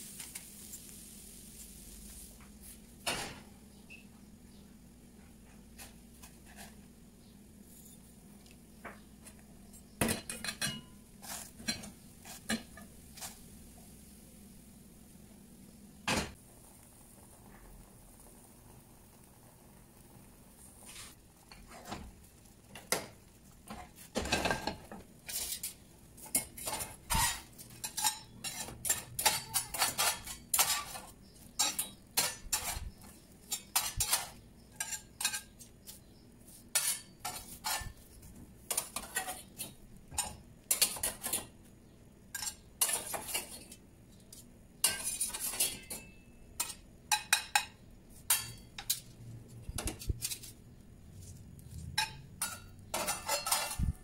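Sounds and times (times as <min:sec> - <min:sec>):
metal spatulas clinking and scraping: 0:10.1 - 0:13.3, 0:25.2 - 0:32.9, 0:33.5 - 0:36.0, 0:36.7 - 0:38.0, 0:42.4 - 0:43.8, 0:44.8 - 0:49.1, 0:49.7 - 0:50.6, 0:51.9 - 0:53.9.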